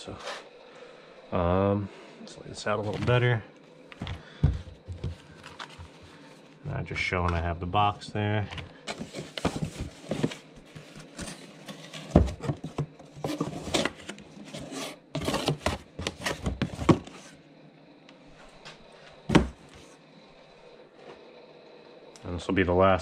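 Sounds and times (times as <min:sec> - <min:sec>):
box set down knock: 0:04.0 - 0:06.0, 0:08.5 - 0:14.2, 0:15.2 - 0:17.3, 0:19.3 - 0:19.9
cardboard box rustling: 0:04.0 - 0:06.4, 0:08.4 - 0:17.4.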